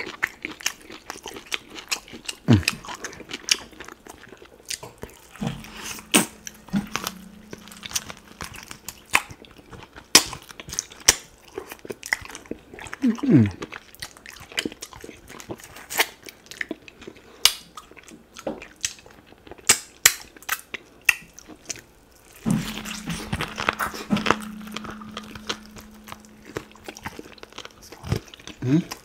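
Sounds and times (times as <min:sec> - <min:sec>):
mouth eating sounds: 0:00.0 - 0:08.4, 0:12.8 - 0:15.2
steady low hum: 0:05.4 - 0:09.6, 0:22.3 - 0:29.0.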